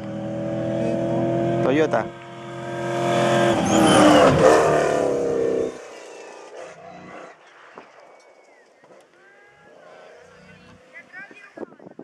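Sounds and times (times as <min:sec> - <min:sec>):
rally car engine racing past: 0:00.0 - 0:07.4.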